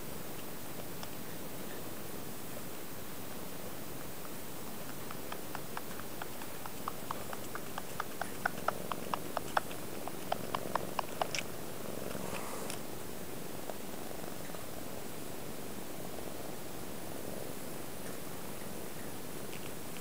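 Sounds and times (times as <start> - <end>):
kitten suckling: 4.2 - 12.9.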